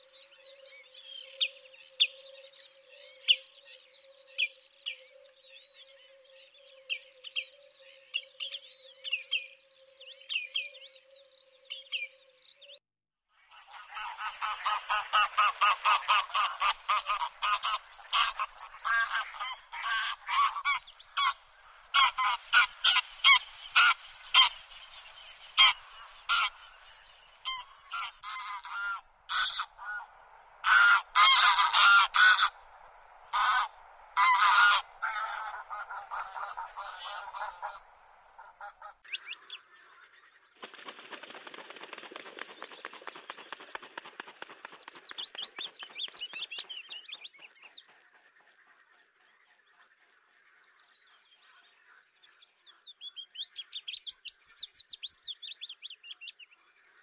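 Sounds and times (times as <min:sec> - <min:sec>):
ducks honking cackles: 0:13.8 - 0:24.5, 0:27.5 - 0:32.6, 0:33.3 - 0:39.0
thin high bird calls: 0:40.6 - 0:48.1.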